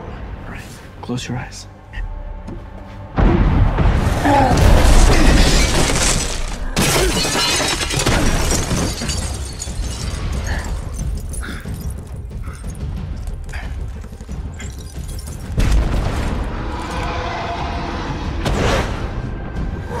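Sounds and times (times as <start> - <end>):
debris falling: 3.7 - 16.9
glass shattering: 4.9 - 13.4, 14.0 - 15.8.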